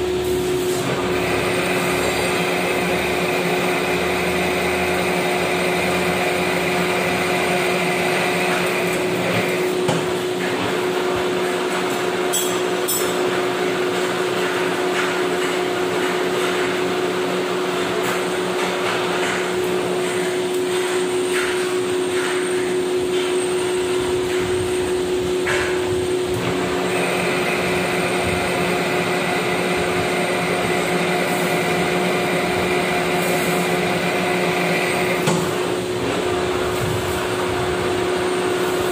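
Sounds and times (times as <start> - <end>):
metal lathe humming: 0.0 - 11.1, 23.5 - 38.9.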